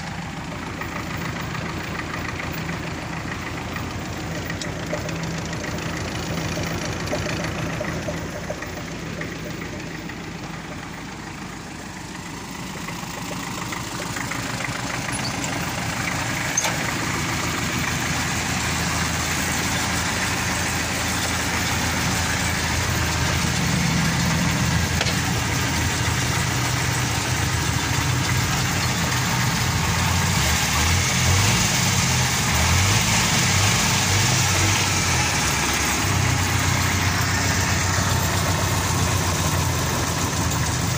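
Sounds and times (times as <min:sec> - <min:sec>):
tractor diesel engine idling: 0:00.0 - 0:40.9.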